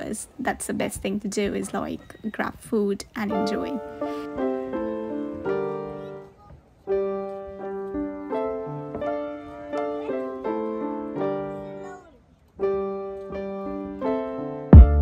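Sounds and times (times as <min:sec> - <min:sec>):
gentle piano melody: 0:03.2 - 0:15.0.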